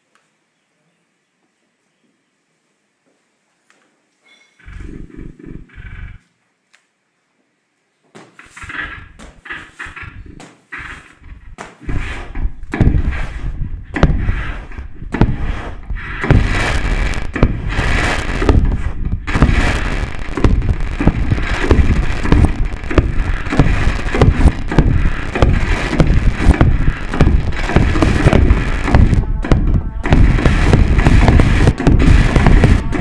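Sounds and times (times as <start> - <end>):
crackling electronic noise bursts: 4.6 - 6.3, 8.4 - 33.0.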